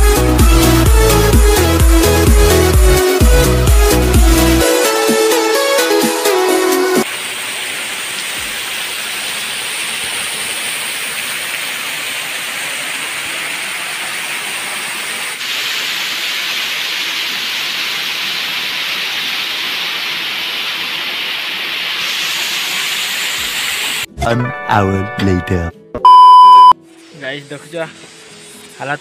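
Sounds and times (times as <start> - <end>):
waterfall rushing over rocks: 7.0 - 24.1.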